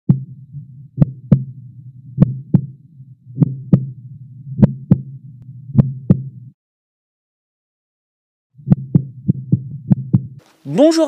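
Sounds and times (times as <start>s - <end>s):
heartbeat thumps: 0.1s - 6.6s, 8.6s - 10.4s
steady low hum: 0.1s - 6.6s, 8.6s - 10.7s.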